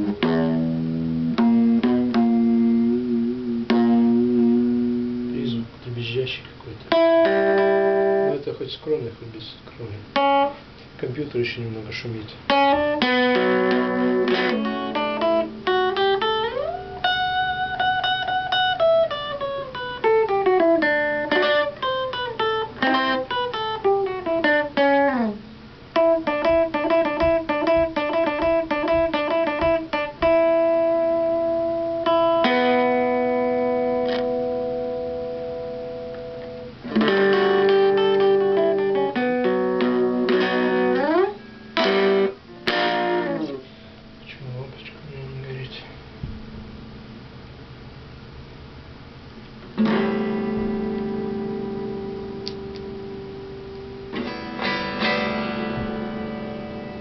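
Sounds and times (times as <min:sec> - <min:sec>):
electric guitar playing: 0:00.0 - 0:08.5, 0:09.9 - 0:57.0.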